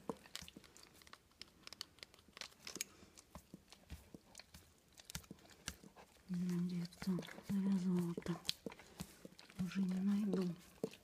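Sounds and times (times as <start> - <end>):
bandage crinkling: 0.0 - 5.9.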